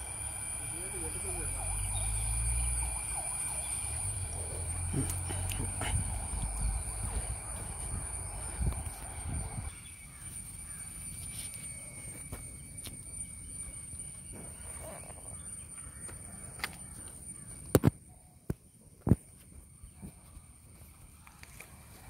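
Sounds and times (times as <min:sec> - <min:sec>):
steady high whine: 0:00.0 - 0:17.9
faint low rumble: 0:01.5 - 0:09.7.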